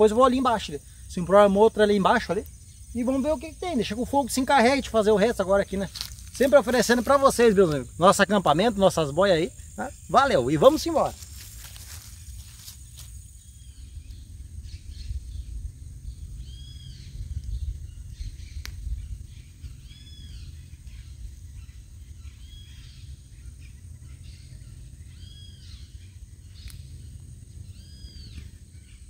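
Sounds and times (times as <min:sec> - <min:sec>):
steady high hiss: 0:00.0 - 0:29.0
bird calling: 0:18.0 - 0:29.0.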